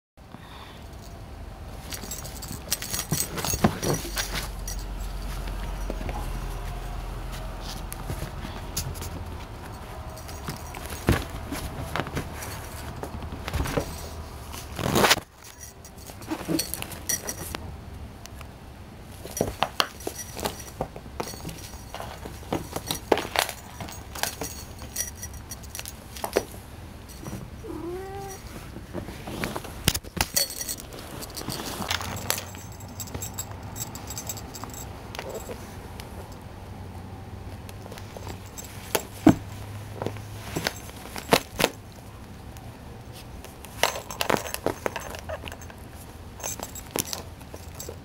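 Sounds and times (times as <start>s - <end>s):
collar bell jingling: 1.8s - 6.7s, 19.3s - 26.0s, 30.4s - 35.7s, 43.9s - 48.0s
paws and toy scuffing: 1.9s - 17.6s.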